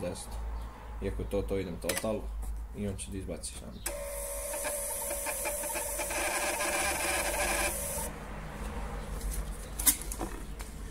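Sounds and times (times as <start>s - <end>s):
receipt printer whirring: 3.9s - 8.1s.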